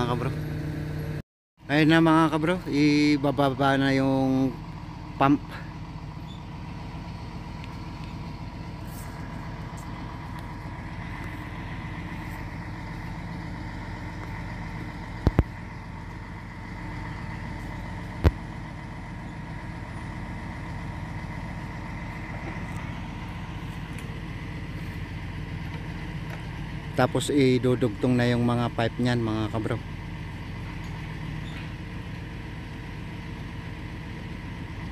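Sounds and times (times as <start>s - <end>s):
crane engine running: 0.0s - 34.9s.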